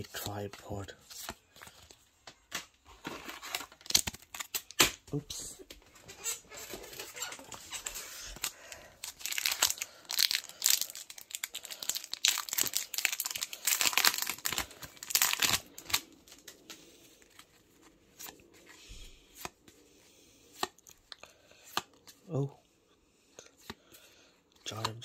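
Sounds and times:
foil pack tearing and crinkling: 3.0 - 4.8, 7.4 - 16.4
cards clicking: 21.6 - 22.2, 24.7 - 25.0.

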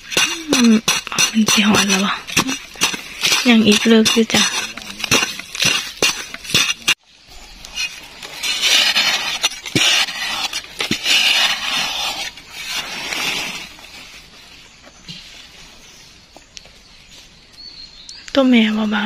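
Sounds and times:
tool scraping sandy soil: 0.0 - 14.4.

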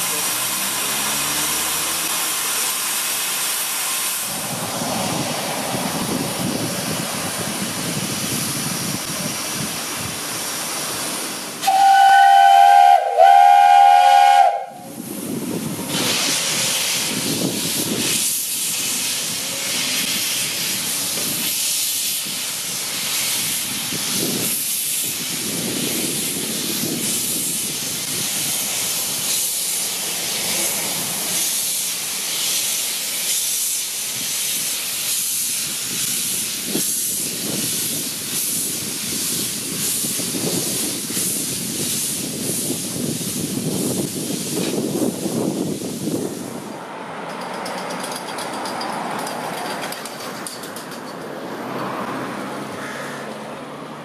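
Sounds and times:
steam locomotive hissing steam: 0.0 - 54.0
steam whistle blasts: 11.6 - 15.0.

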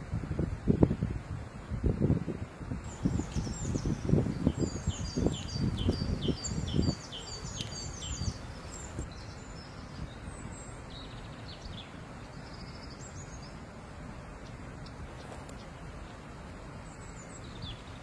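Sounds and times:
bird chirping: 2.9 - 13.6, 16.8 - 18.0.

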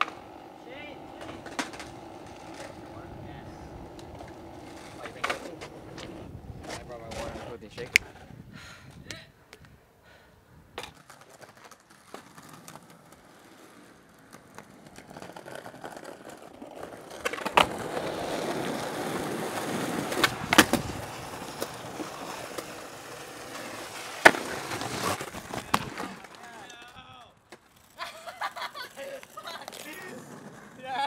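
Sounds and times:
skateboard clacks: 0.0 - 8.2, 10.8 - 31.0
skateboard wheels rolling on pavement: 0.0 - 31.0.

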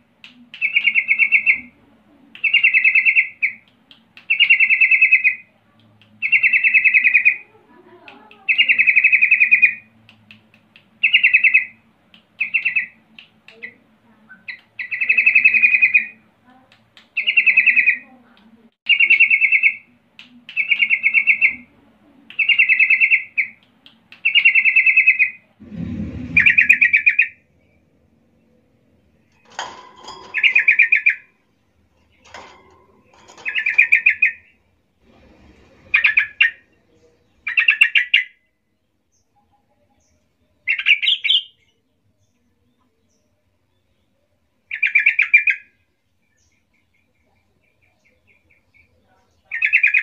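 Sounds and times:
dull low thump: 25.6 - 27.1.

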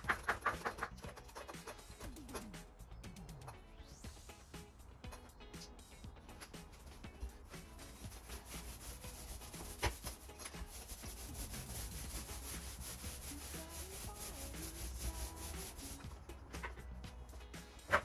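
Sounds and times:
paint roller rubbing on wall: 7.6 - 16.0.

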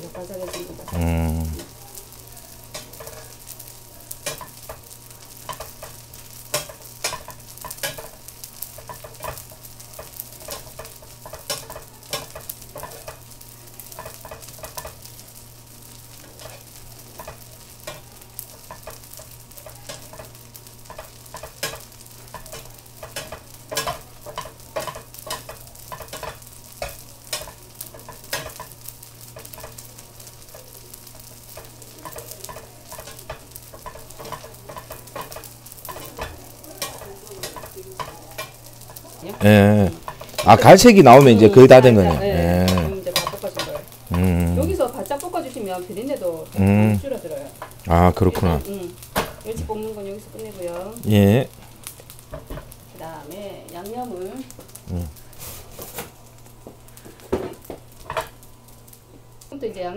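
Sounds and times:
fish sizzling in oil: 0.0 - 59.9
stirring strokes scraping a pan: 1.6 - 47.9, 48.6 - 59.0.

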